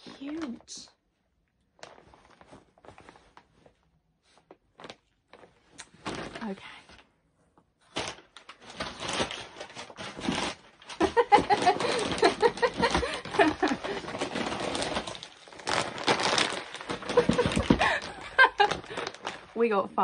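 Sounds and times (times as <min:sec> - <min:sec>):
plastic snack bags crinkling: 0:00.0 - 0:00.8, 0:01.7 - 0:03.7, 0:07.9 - 0:19.7.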